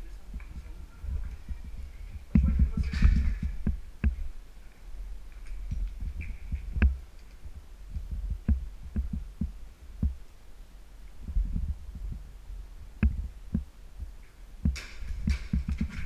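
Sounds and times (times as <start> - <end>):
footsteps on rubble-strewn concrete: 14.7 - 16.0.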